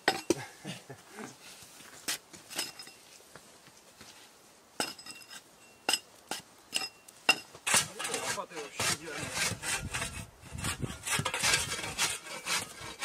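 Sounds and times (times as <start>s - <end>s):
metal objects clinking: 2.5s - 3.0s, 4.8s - 6.1s, 6.7s - 7.5s
rough scraping rub: 7.5s - 13.0s.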